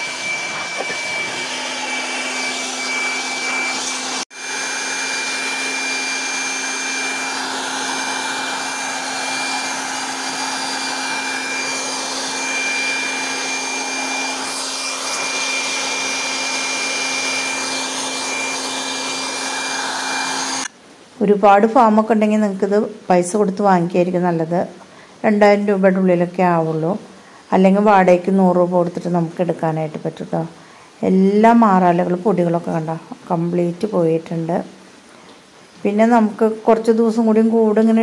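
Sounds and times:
air blower whining and rushing: 0.0 - 20.7.

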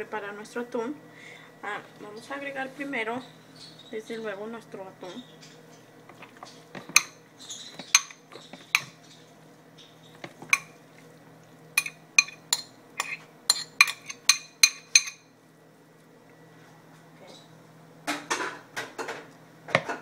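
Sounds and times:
glass bowl clinking on plastic: 7.8 - 8.9.

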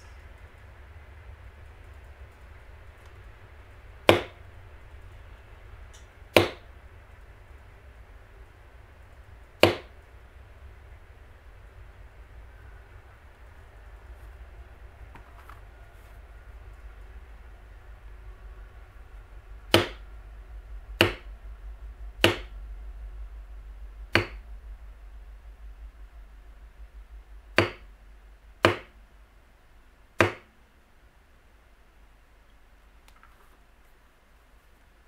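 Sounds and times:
mallet striking leather punch: 4.1 - 4.4, 6.4 - 6.6, 9.6 - 9.9, 19.7 - 20.0, 21.0 - 21.3, 22.2 - 22.5, 24.2 - 24.4, 27.6 - 27.8, 28.6 - 28.9, 30.2 - 30.5.

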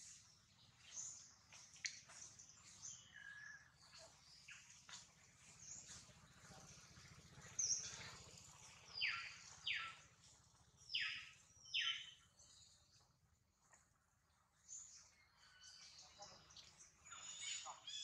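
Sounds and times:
downward-sweeping bird calls: 8.6 - 10.0, 10.9 - 12.3
faint bird chirps: 10.9 - 13.0.

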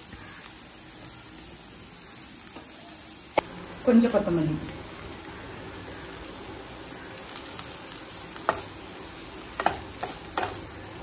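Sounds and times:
vegetables sizzling in a pan: 0.0 - 11.0
spatula scraping a pan: 9.4 - 10.9.

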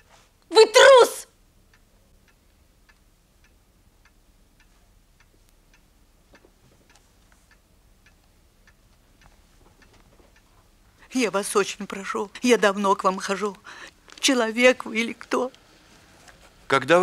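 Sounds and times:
clock ticking: 1.6 - 13.6.

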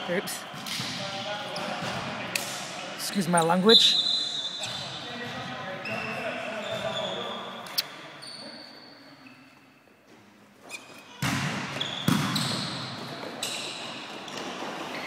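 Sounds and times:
shoes squeaking on court: 3.4 - 9.8, 10.6 - 15.0.

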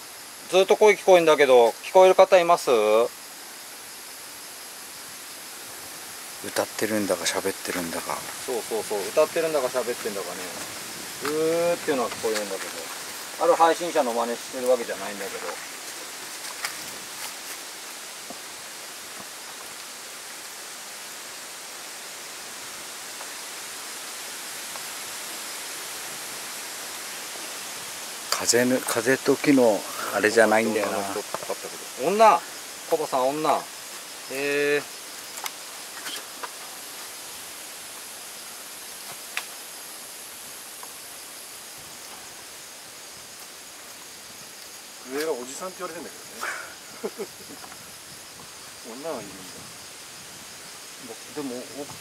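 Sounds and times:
insects chirring: 0.0 - 52.0
outdoor night background hiss: 0.0 - 52.0
faint ticks: 39.0 - 39.6.

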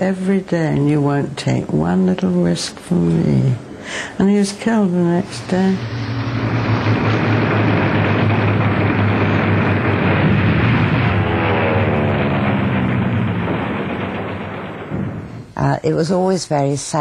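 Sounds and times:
propeller plane engine drone: 5.2 - 15.6
whining note falling in pitch: 5.3 - 15.5.

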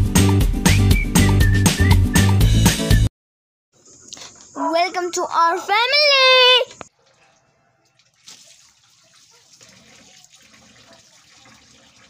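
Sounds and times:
hands washing under water: 8.0 - 12.0.

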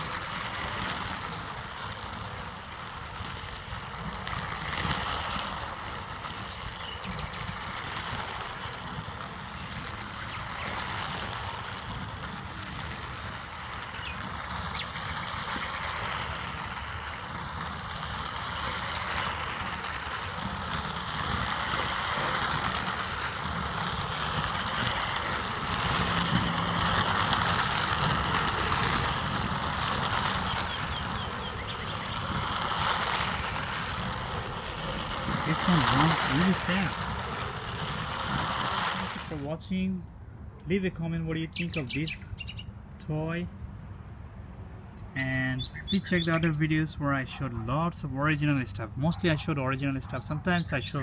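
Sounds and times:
toy train motor whirring: 0.0 - 39.6.

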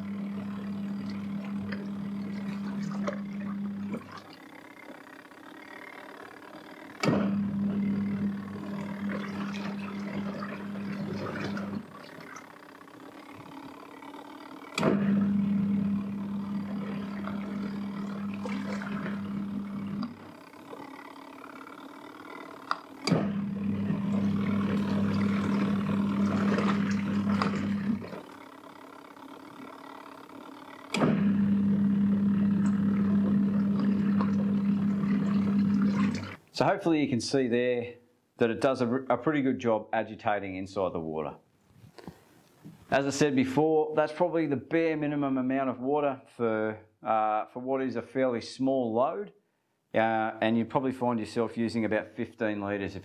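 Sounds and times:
water sloshing in tub: 0.0 - 5.1, 7.1 - 36.5
washing machine motor humming: 0.0 - 36.5.

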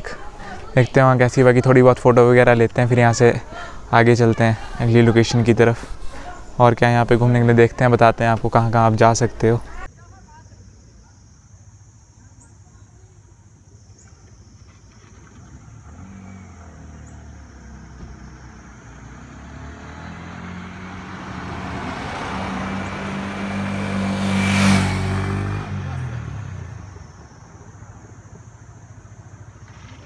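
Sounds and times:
tyre noise rush: 0.0 - 9.9
vehicles driving past: 0.0 - 9.9, 14.4 - 30.0.

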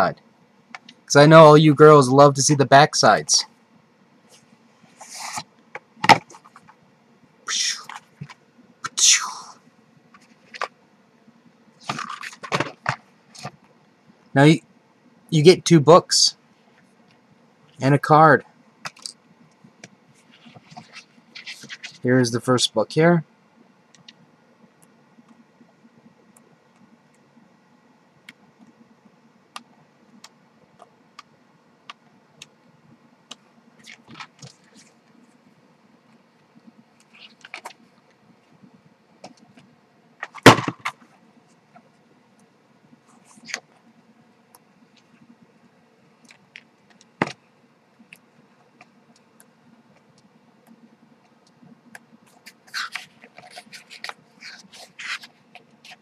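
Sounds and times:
pages rustling: 4.3 - 6.8, 10.1 - 10.8, 11.8 - 13.6, 20.2 - 22.1, 33.8 - 35.3, 36.6 - 37.9, 43.1 - 43.8, 52.3 - 56.0.

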